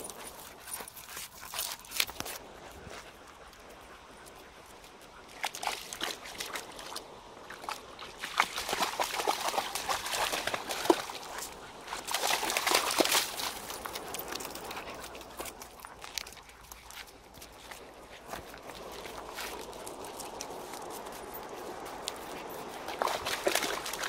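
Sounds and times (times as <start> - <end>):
dog splashing through water: 5.2 - 24.0.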